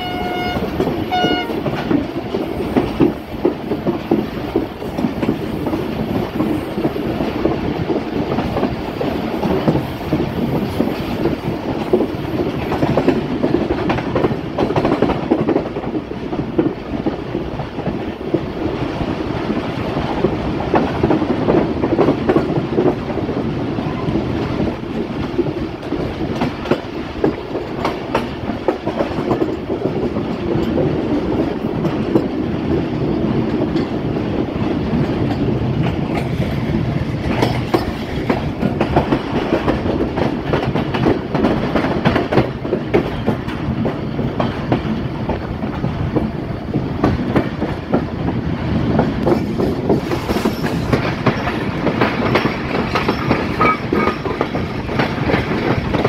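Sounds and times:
train rumble: 0:00.0 - 0:56.0
wheels clattering over rails: 0:34.9 - 0:56.0.

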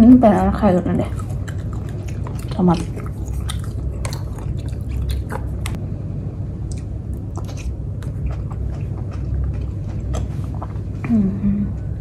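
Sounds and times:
steady low hum: 0:00.0 - 0:12.0
person chewing: 0:01.0 - 0:05.8, 0:06.6 - 0:11.1.

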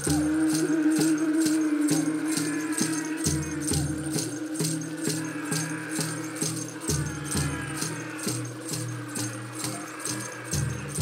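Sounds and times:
shaker beat: 0:00.0 - 0:11.0.

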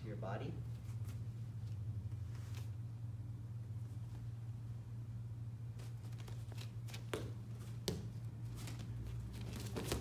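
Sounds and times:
low room hum: 0:00.0 - 0:10.0
bare feet slapping on mats: 0:05.8 - 0:10.0.

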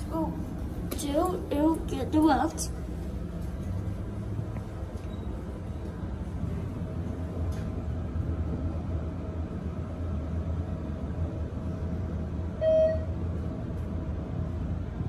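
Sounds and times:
elevator low rumble: 0:00.0 - 0:15.0
short electronic beep: 0:12.6 - 0:13.1.

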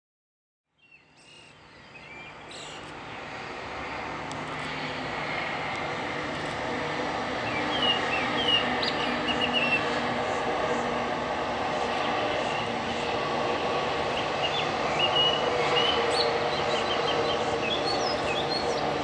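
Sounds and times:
train rumbling: 0:01.6 - 0:19.0
bird chirping: 0:14.2 - 0:19.0.

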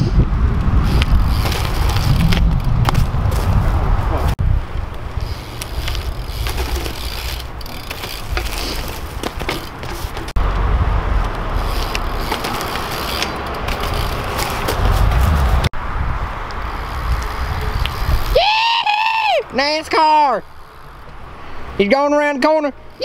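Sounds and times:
bike rolling on concrete: 0:00.0 - 0:23.0
bike hub ratchet clicking: 0:00.8 - 0:03.4, 0:04.9 - 0:10.3, 0:11.2 - 0:15.3, 0:16.5 - 0:18.4.

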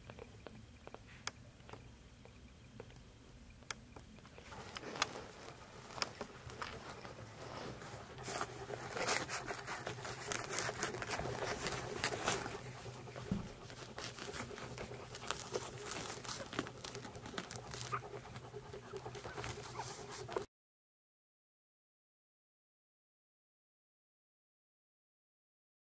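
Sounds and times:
puppies suckling: 0:00.0 - 0:20.5
soft rustling of fur: 0:04.2 - 0:20.5.

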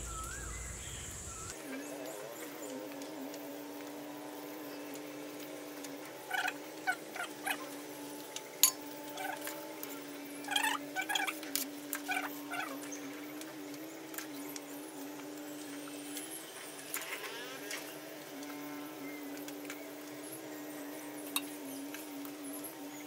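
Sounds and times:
steady low hum: 0:00.0 - 0:16.8.

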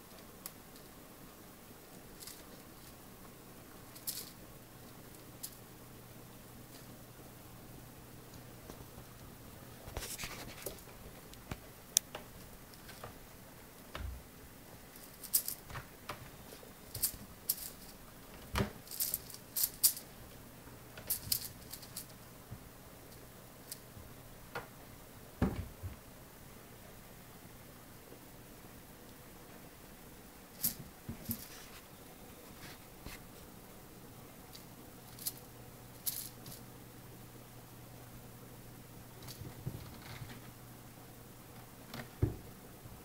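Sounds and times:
kittens scratching and rustling: 0:01.9 - 0:05.7, 0:08.6 - 0:13.4, 0:14.9 - 0:18.0, 0:21.0 - 0:22.3, 0:30.5 - 0:33.5, 0:39.1 - 0:40.6.

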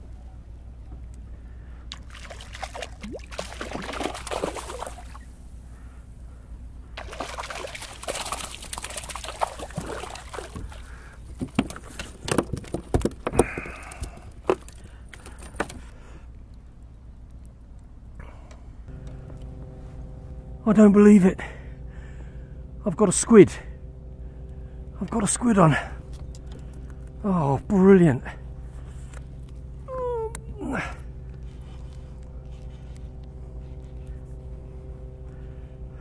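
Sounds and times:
water splashing against kayak: 0:01.9 - 0:05.2, 0:07.0 - 0:14.8
knocks and clatters in kayak: 0:09.6 - 0:15.9.

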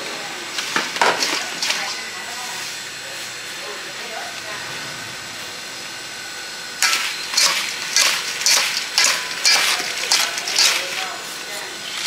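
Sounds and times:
spoon scraping and rattling in bowl: 0:06.8 - 0:11.2.

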